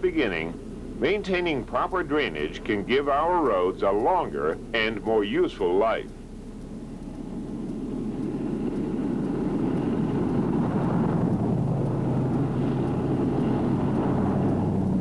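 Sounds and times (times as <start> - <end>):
low engine hum: 0.0 - 15.0
car approaching: 6.7 - 15.0.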